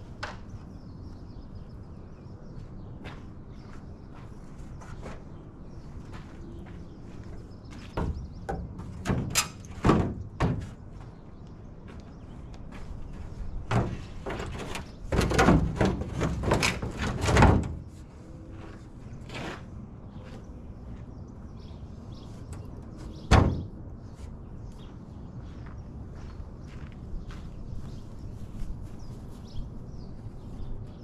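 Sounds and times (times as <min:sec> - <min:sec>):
fiberglass hood knocking and rattling: 0:07.9 - 0:10.9, 0:13.6 - 0:17.9, 0:22.6 - 0:23.8.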